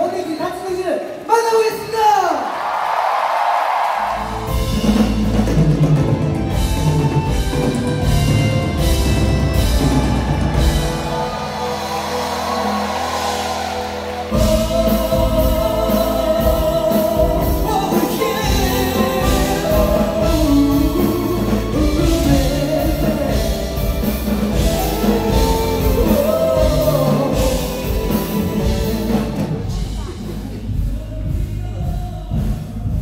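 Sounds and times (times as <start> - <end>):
live band with drum kit: 4.0 - 33.0
person singing: 10.9 - 33.0.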